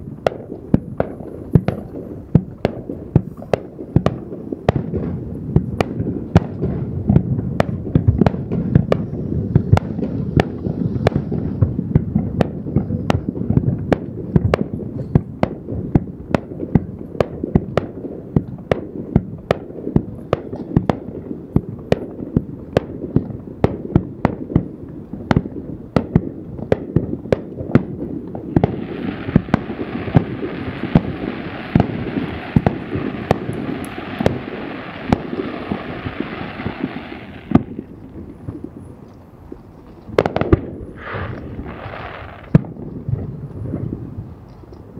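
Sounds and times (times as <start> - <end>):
firework shells bursting: 26.8 - 43.9
steady hiss: 27.4 - 44.9.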